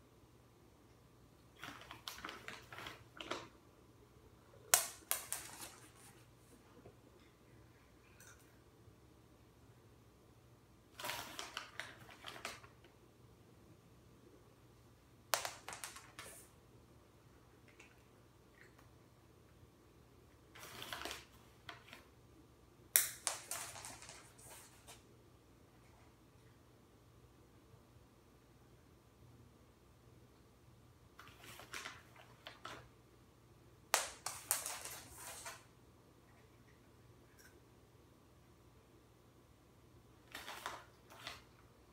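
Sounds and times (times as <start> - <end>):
clicks and ticks on hard floor: 1.4 - 3.6, 4.6 - 7.4, 10.9 - 13.0, 15.3 - 16.6, 17.6 - 19.0, 20.5 - 22.1, 23.0 - 25.0, 31.2 - 32.9, 33.9 - 35.7, 40.2 - 41.7
cat treats rattling on hard floor: 15.4 - 16.4, 23.0 - 24.7, 34.0 - 35.6.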